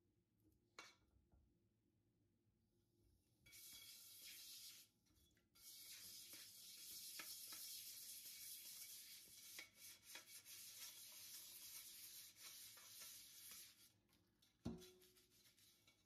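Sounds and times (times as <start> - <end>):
brush scrubbing frying pan: 3.5 - 5.0, 5.6 - 16.0.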